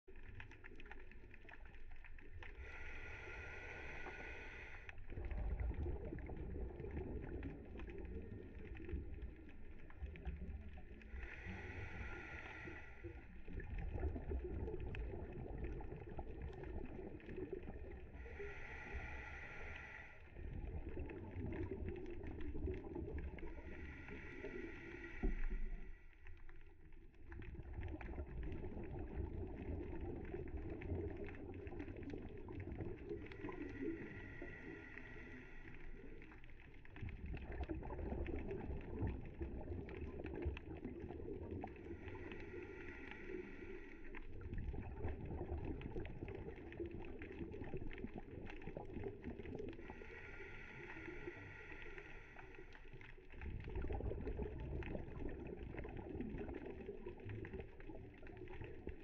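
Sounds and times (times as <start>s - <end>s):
exhaled bubbles rumbling underwater: 0.0s - 59.0s
scuba regulator inhalation hiss: 2.6s - 5.0s, 11.2s - 13.3s, 18.2s - 20.3s, 23.5s - 26.0s, 33.3s - 36.3s, 42.0s - 44.2s, 49.9s - 52.8s.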